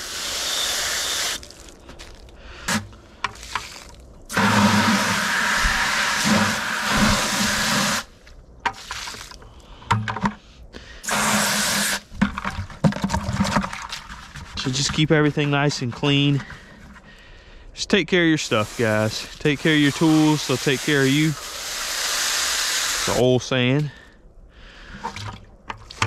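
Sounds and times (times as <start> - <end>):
garden hose spraying water: 0.0 - 1.6, 3.4 - 8.1, 11.0 - 12.0, 18.4 - 23.5.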